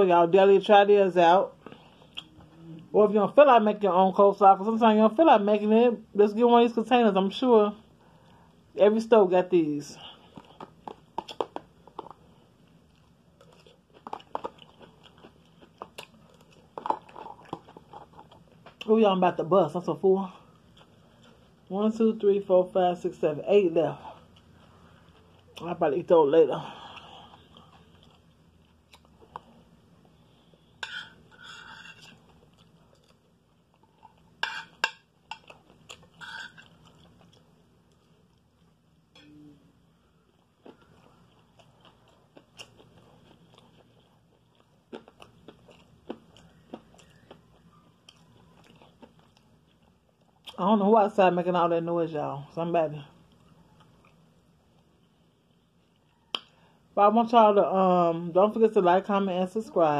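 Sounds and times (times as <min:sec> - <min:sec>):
person chewing food: 0:10.1 - 0:18.8, 0:26.9 - 0:38.8, 0:40.1 - 0:50.6.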